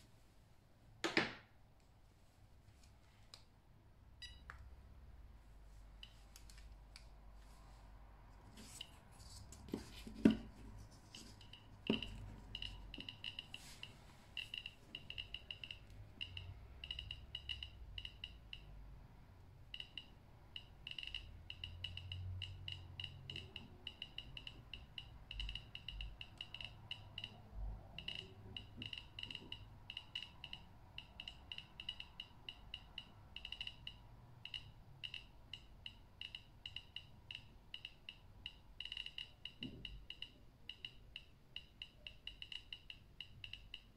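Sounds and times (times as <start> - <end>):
radiation detector beeping: 11.2 - 18.7, 19.7 - 43.9.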